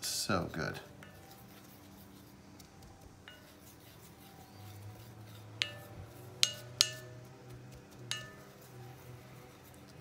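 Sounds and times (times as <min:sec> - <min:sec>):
wooden stick tapping glass cup: 0:03.3 - 0:03.8, 0:05.5 - 0:08.7.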